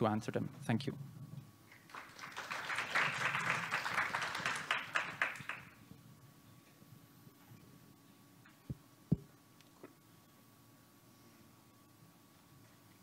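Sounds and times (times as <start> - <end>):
audience applauding: 1.7 - 5.8.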